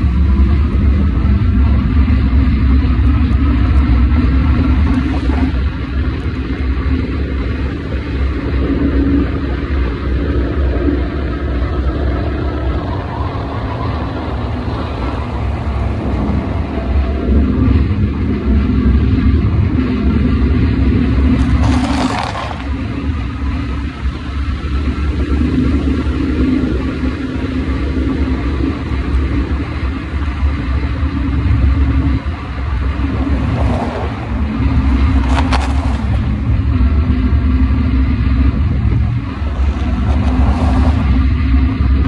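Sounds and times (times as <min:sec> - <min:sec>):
low hum: 0:00.0 - 0:42.0
road and wind noise: 0:00.0 - 0:42.0
passing cars swishing: 0:33.0 - 0:36.6, 0:39.4 - 0:41.6.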